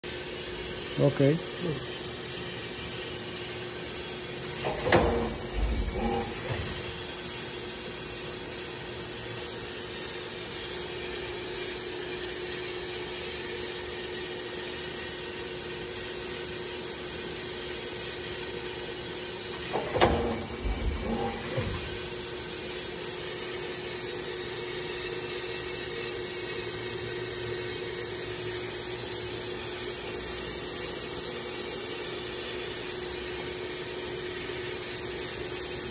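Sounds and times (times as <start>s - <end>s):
machine humming with constant tone: 0.0s - 35.9s
mechanical clunking and clatter: 4.5s - 7.2s, 19.5s - 22.4s.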